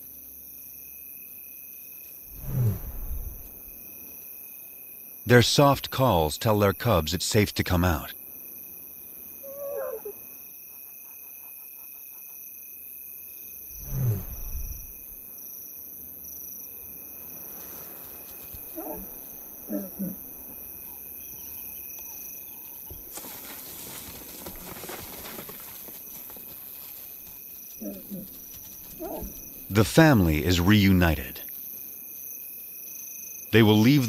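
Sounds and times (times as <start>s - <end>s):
lioness calling: 9.4s - 11.4s, 18.5s - 22.7s, 27.8s - 29.8s.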